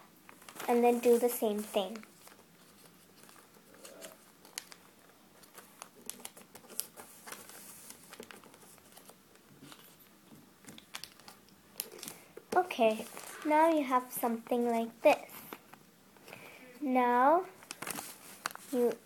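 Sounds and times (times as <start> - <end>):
paper crinkling and clicking: 0.3 - 13.5, 17.6 - 19.0.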